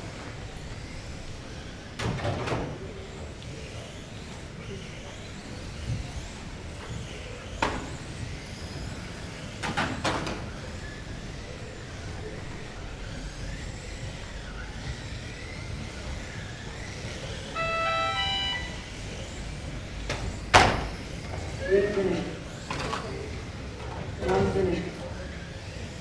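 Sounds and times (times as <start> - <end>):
electronic beeps: 17.6 - 18.9.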